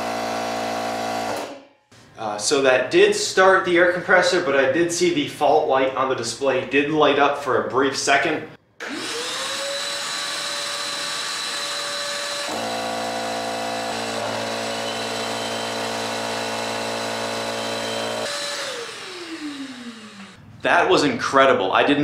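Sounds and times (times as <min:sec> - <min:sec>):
motor winding down: 0:08.8 - 0:20.4
steady motor hum: 0:12.4 - 0:20.4
deeper motor sound: 0:12.4 - 0:20.6.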